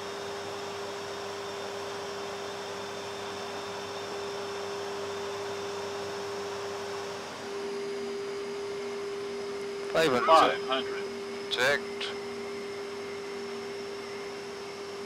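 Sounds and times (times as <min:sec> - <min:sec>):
electrical hum: 0:09.6 - 0:14.3.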